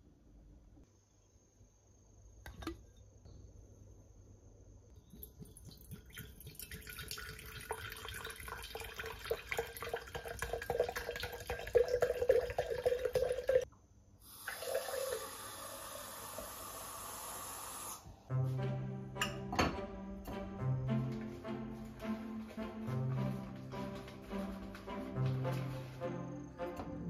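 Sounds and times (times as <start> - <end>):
liquid pouring into glass jar: 5.1 - 13.6, 14.5 - 15.2
background music: 18.3 - 27.0.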